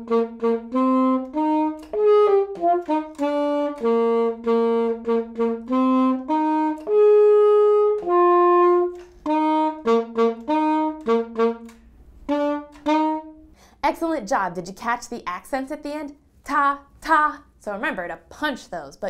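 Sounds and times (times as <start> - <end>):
alto saxophone melody: 0.0 - 13.7.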